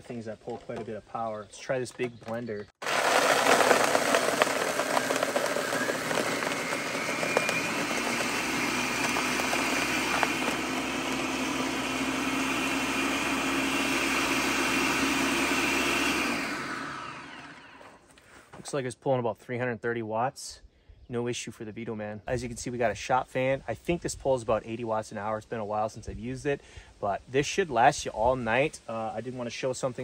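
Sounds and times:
blender motor whining: 2.8 - 18.0.

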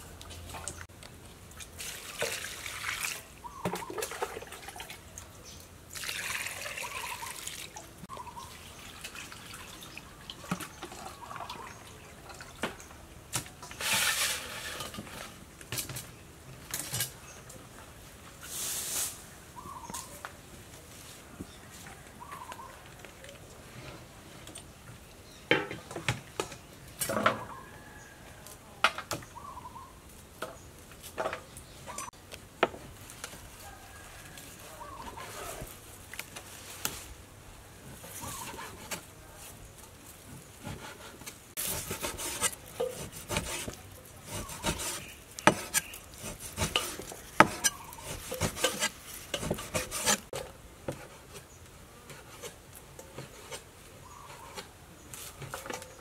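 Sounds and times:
crisp stalks being cut: 40.6 - 50.4
knife chopping on wooden board: 41.7 - 50.2.

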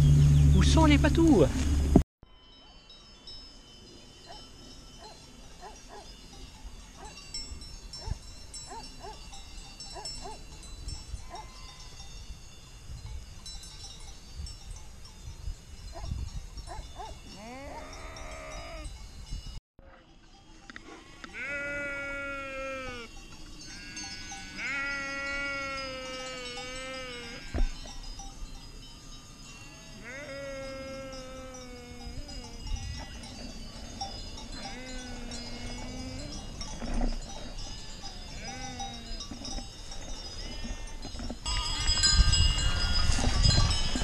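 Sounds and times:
sheep bells tinkling: 2.2 - 44.0
sheep bleating: 21.2 - 23.1, 24.6 - 27.6, 30.0 - 32.0.

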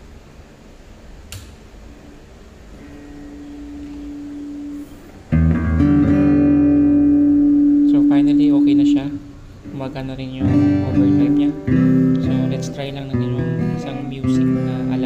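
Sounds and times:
amplifier switch click: 1.3 - 1.6
faint steady tone: 2.7 - 5.8, 6.4 - 15.0
acoustic guitar chord strummed: 2.7 - 15.0.

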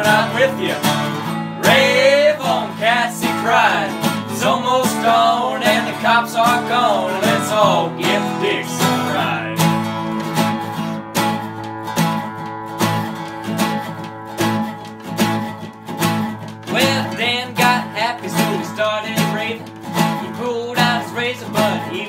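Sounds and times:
young man singing: 0.0 - 1.0, 1.6 - 9.8, 16.7 - 22.0
guitars strumming rockabilly rhythm: 0.0 - 22.0.

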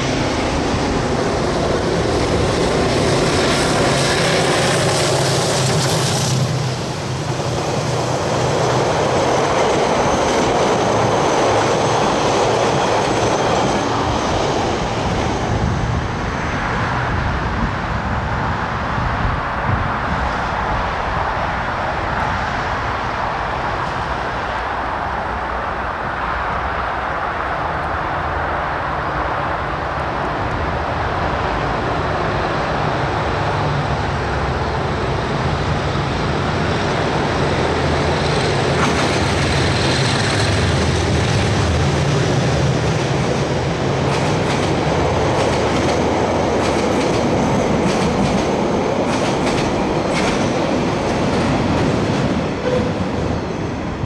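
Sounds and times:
train wheels clicking over rails: 0.0 - 16.0, 33.0 - 54.0
diesel locomotive engine drone: 0.0 - 54.0.

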